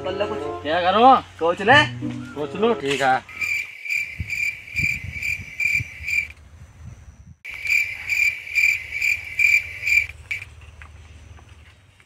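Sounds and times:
cricket chirping: 3.3s - 6.4s, 7.0s - 10.5s.

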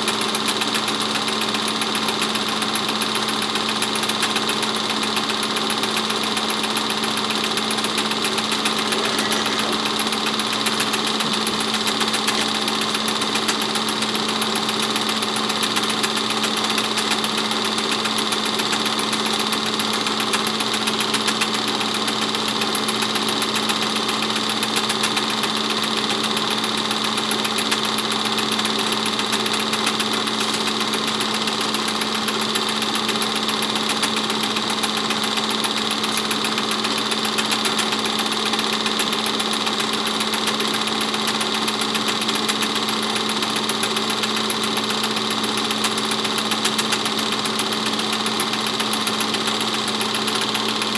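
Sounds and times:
film projector running: 0.0s - 50.9s.

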